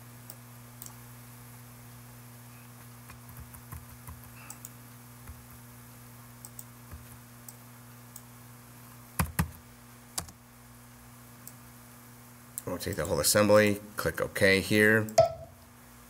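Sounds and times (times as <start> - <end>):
low steady hum: 0.0 - 16.0
computer mouse clicks: 3.1 - 5.4, 6.4 - 8.3.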